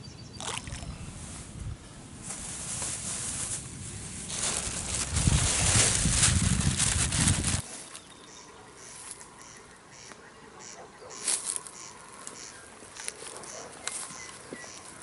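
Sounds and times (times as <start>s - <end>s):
loud rustle: 2.2s - 7.9s.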